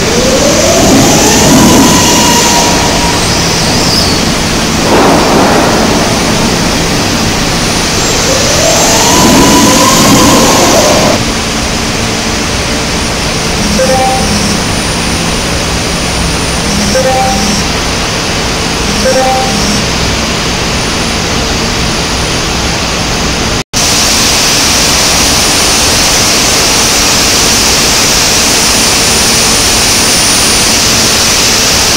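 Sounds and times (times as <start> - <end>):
steel mill machinery hum and hiss: 0.0 - 31.9
short pitched blips: 13.6 - 14.9, 16.6 - 17.8, 18.8 - 19.9.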